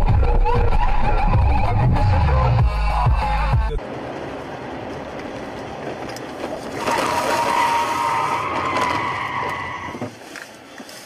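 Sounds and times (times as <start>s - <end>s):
car tyres squealing: 0.0s - 2.4s, 6.5s - 11.0s
road noise: 0.0s - 11.0s.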